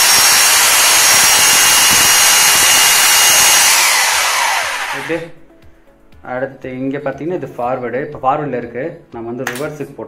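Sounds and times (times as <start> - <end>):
rotary hammer drill whining: 0.0 - 5.3.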